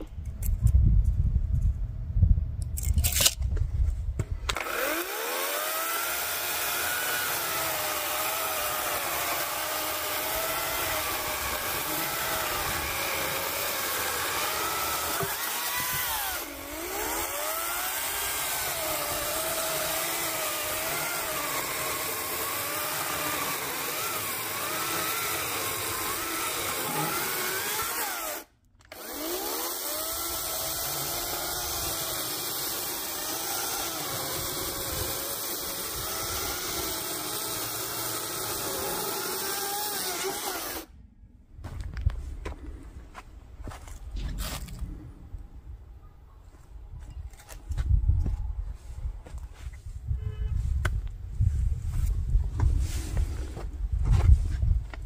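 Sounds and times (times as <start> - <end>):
electric chainsaw cutting wood: 4.5 - 40.9.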